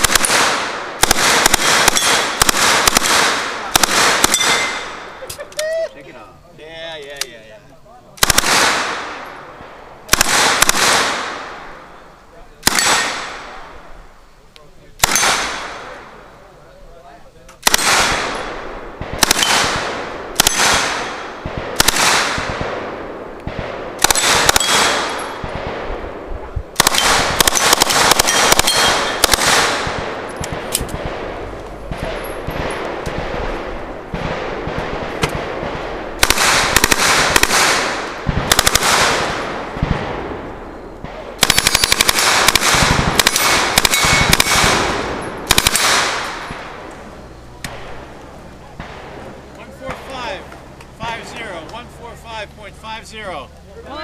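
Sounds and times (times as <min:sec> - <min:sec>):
submachine gun bursts: 0:41.4 - 0:44.6.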